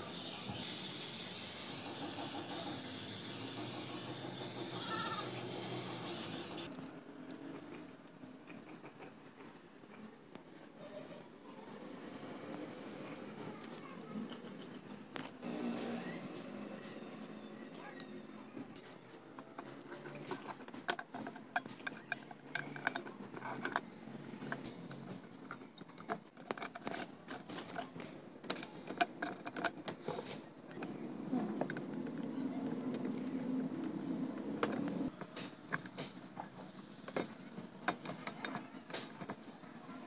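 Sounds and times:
metal parts clicking and rattling: 0:19.3 - 0:36.4, 0:37.0 - 0:39.5.

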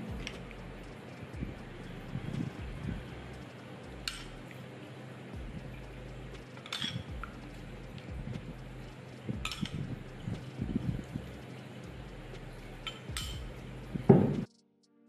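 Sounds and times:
steady hum: 0:00.0 - 0:14.6
soft low knocks: 0:00.1 - 0:04.4, 0:07.0 - 0:08.7, 0:09.3 - 0:14.5
metal spoon clinking china dish: 0:06.6 - 0:07.1, 0:12.8 - 0:13.5.

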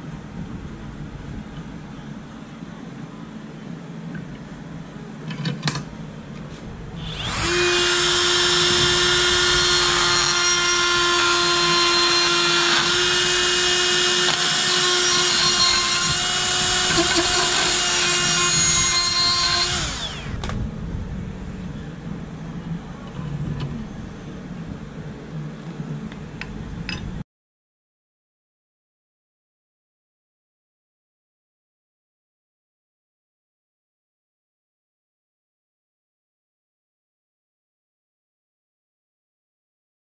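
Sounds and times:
cordless drill running: 0:07.0 - 0:20.5.

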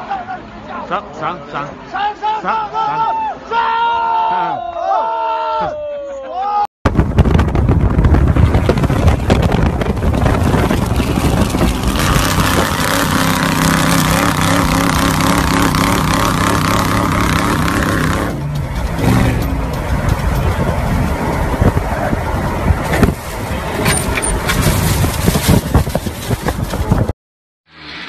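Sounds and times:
road noise: 0:00.0 - 0:04.3, 0:06.9 - 0:27.1, 0:27.7 - 0:28.0
wind noise: 0:06.9 - 0:27.1
engine at high revs: 0:08.8 - 0:23.0.

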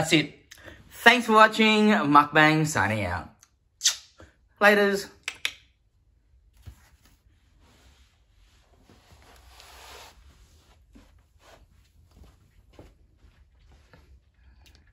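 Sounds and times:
person shifting and rustling: 0:06.5 - 0:14.4.

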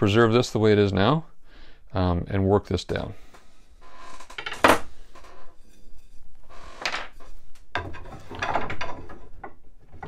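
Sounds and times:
wooden knocks: 0:06.8 - 0:10.0.

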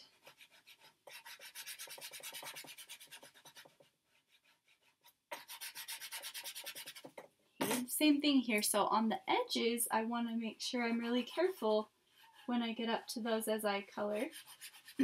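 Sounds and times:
chalk pastel scrubbing on paper: 0:00.2 - 0:07.8, 0:14.2 - 0:15.0.

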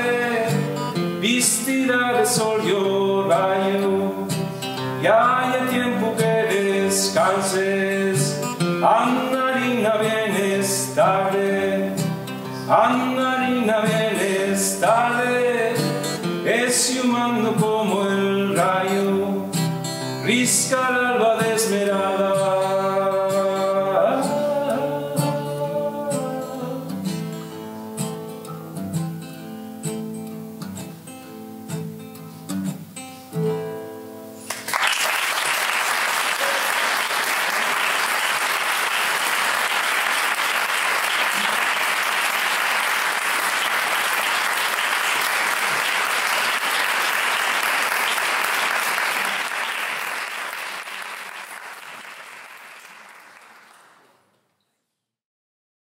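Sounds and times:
man singing: 0:00.0 - 0:27.4
acoustic guitar: 0:00.0 - 0:34.7, 0:36.1 - 0:54.8
audience applause: 0:34.5 - 0:54.2.

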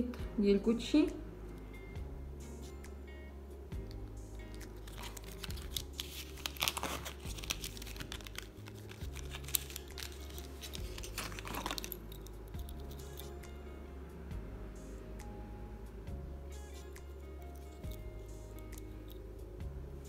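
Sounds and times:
cardboard crinkling: 0:04.7 - 0:12.9.

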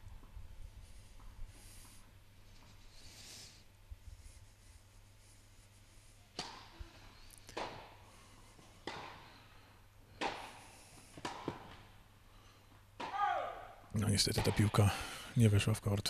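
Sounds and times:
racket hitting tennis ball echoing: 0:08.8 - 0:09.3, 0:10.2 - 0:10.6, 0:11.2 - 0:11.9, 0:13.0 - 0:13.5.

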